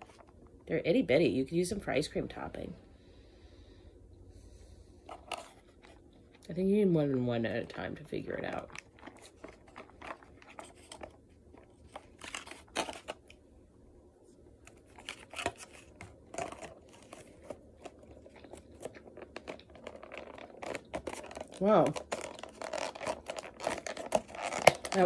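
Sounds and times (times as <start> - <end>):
plastic tub clicks and crinkles: 14.7 - 25.0.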